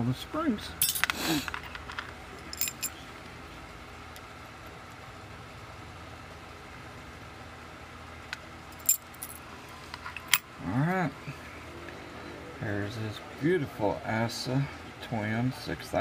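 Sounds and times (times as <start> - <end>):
faint background noise: 0.0 - 16.0.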